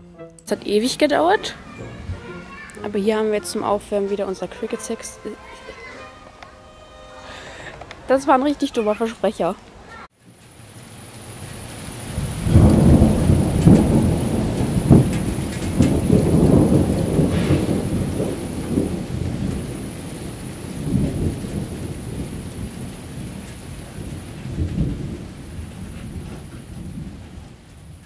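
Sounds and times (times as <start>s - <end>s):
rain hissing: 0.0s - 28.0s
rolling thunder: 10.5s - 28.0s.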